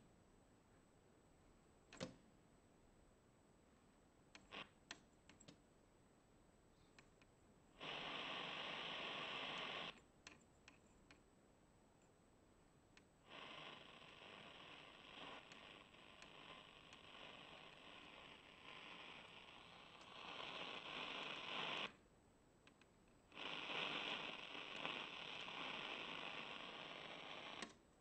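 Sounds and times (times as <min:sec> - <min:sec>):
shortwave radio static hiss: 0:04.4 - 0:04.9, 0:07.7 - 0:10.0, 0:13.2 - 0:22.0, 0:23.2 - 0:27.8.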